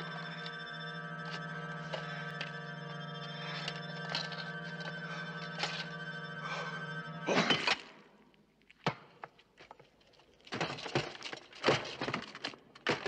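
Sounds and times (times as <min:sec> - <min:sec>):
armour knocks and clatter: 0:10.5 - 0:13.0.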